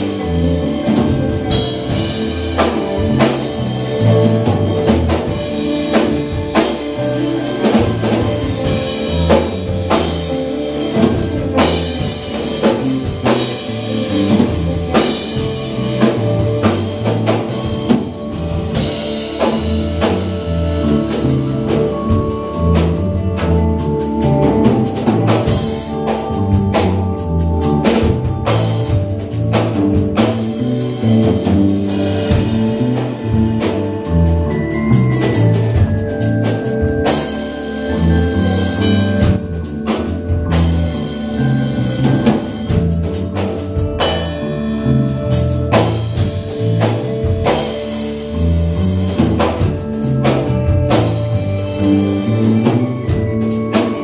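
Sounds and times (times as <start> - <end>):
bass guitar: 0.0 - 54.0
drum kit beat: 0.0 - 54.0
electric guitar: 0.0 - 54.0
keyboard: 0.0 - 54.0.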